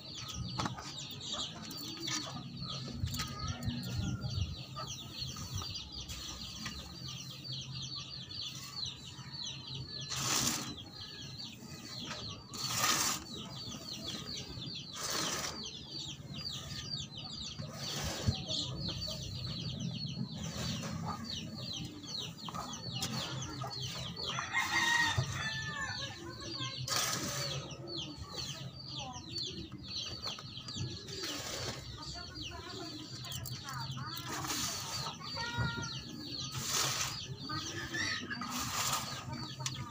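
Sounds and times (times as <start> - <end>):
chickens clucking: 0.0 - 39.9
metal shovel scraping soil: 10.0 - 15.9, 17.5 - 19.3, 20.4 - 26.2, 26.8 - 28.5, 31.1 - 32.2, 34.2 - 39.8.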